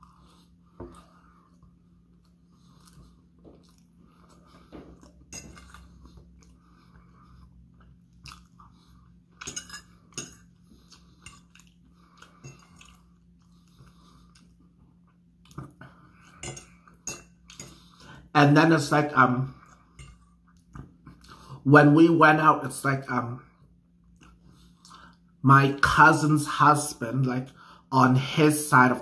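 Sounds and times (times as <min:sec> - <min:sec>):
person chewing food: 0:00.0 - 0:18.3, 0:19.6 - 0:21.6, 0:23.6 - 0:25.4.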